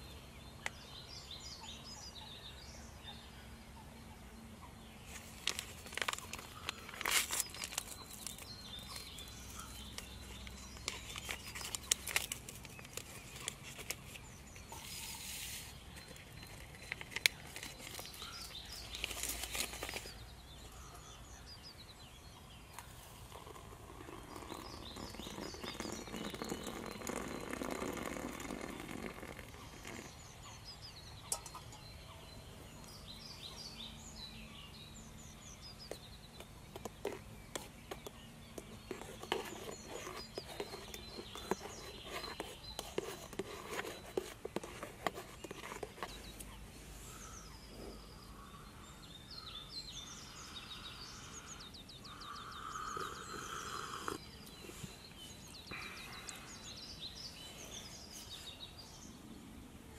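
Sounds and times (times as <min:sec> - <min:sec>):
packet and stuff sack rustling: 0:05.1 - 0:09.2, 0:16.5 - 0:20.2.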